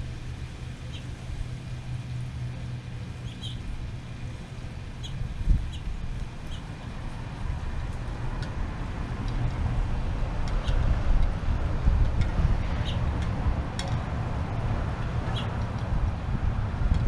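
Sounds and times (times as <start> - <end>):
low outdoor rumble: 0.0 - 17.0
bird chirps: 3.2 - 3.6.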